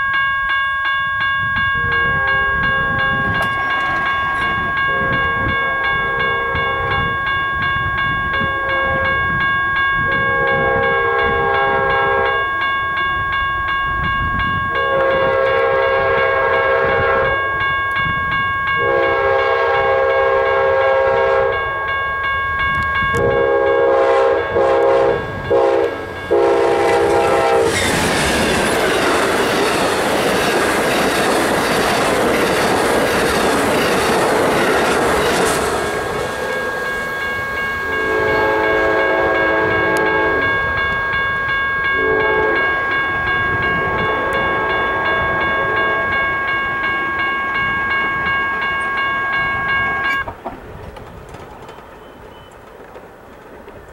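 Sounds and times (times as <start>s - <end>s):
level-crossing warning bell: 0.0s - 50.3s, 51.5s - 52.9s
train cars clickety-clack: 1.7s - 12.5s, 22.6s - 53.9s
locomotive horn blasts: 1.8s - 7.3s, 8.3s - 9.4s, 10.0s - 12.6s, 14.7s - 17.6s, 18.8s - 22.0s, 23.1s - 27.8s, 36.5s - 40.8s, 41.9s - 42.8s, 43.4s - 46.2s.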